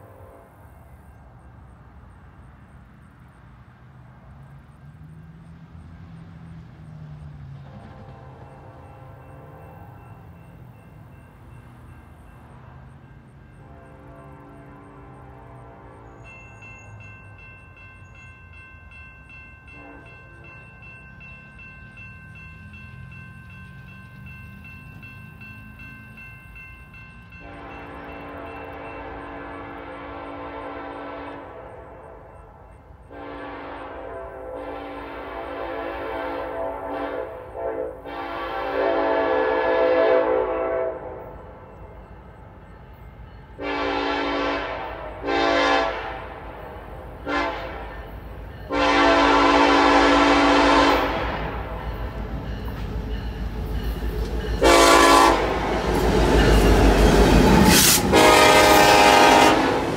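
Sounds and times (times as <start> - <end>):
train horn blasts: 0.0 - 0.9, 7.5 - 10.6, 12.5 - 16.5, 19.6 - 20.9, 27.3 - 42.0, 43.5 - 59.9
locomotive engine rumble: 0.0 - 59.9
crossing warning bell ringing: 7.2 - 59.9.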